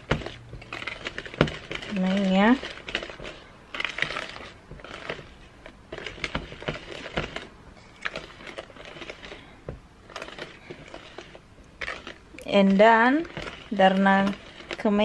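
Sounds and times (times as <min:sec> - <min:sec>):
spoon scraping plastic bowl: 0:00.0 - 0:15.0.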